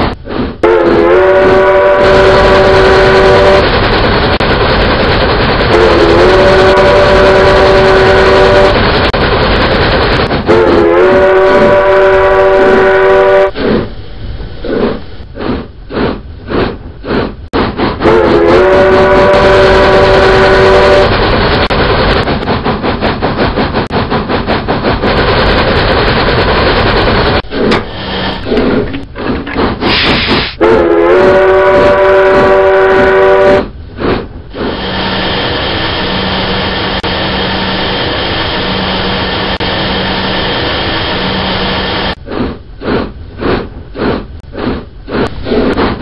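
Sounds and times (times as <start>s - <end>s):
steam locomotive chuffing: 0.2s - 46.0s
steam whistle blast: 0.6s - 3.6s, 5.7s - 8.8s, 10.5s - 13.6s, 18.0s - 21.1s, 29.9s - 33.6s
steam hiss: 29.8s - 30.6s.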